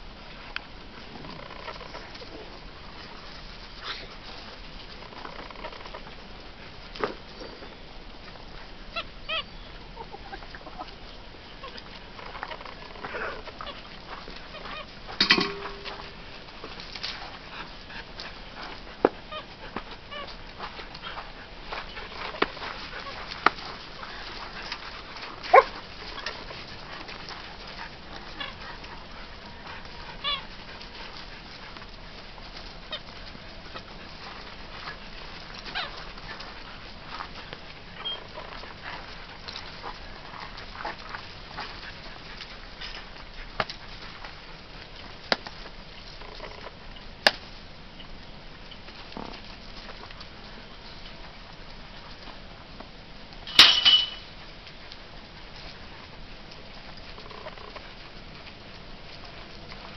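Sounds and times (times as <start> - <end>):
puppies yipping: 8.9 - 16.3, 21.8 - 31.8, 34.7 - 37.3, 37.9 - 39.2.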